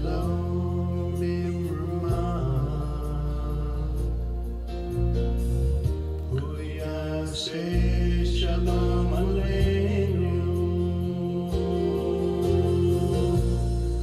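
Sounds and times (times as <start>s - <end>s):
person singing: 0.0s - 4.7s, 6.2s - 14.0s
held low chords: 0.0s - 14.0s.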